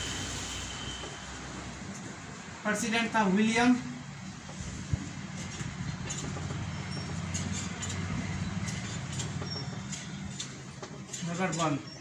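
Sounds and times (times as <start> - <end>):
marker squeaking on whiteboard: 9.3 - 10.2.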